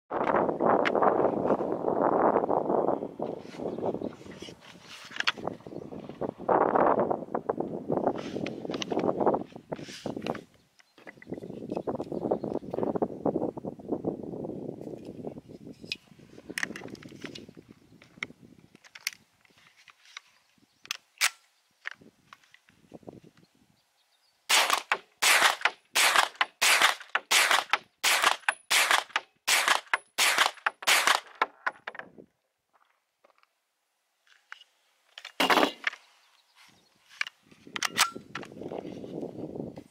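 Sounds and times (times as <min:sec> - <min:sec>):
gunshot: 0:24.5 - 0:31.3
metallic clicks of magazine release: 0:37.8 - 0:38.5.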